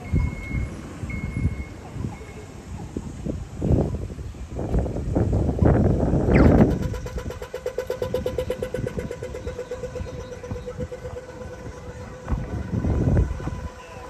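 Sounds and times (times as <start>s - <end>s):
passing road traffic: 0.0s - 14.0s
crossing signal rapid pips: 6.3s - 14.0s.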